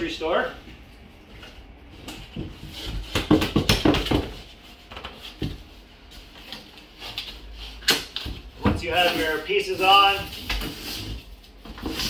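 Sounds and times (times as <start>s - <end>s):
cardboard panels knocking and scraping: 2.2s - 5.7s.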